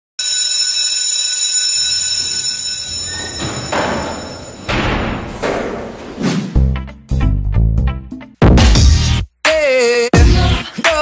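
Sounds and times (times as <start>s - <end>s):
alarm-like high ringing: 0.2s - 5.4s.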